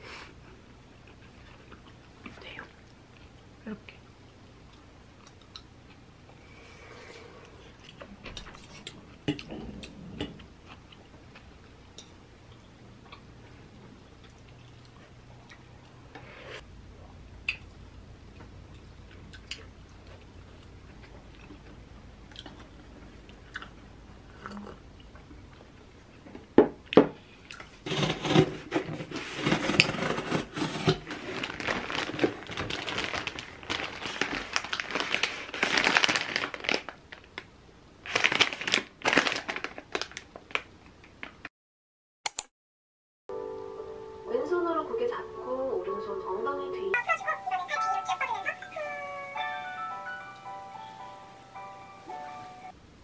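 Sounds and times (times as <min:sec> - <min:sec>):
soft chewing: 0:00.4 - 0:06.5, 0:07.1 - 0:16.0, 0:17.4 - 0:26.3
plastic bag crinkling: 0:29.2 - 0:41.3.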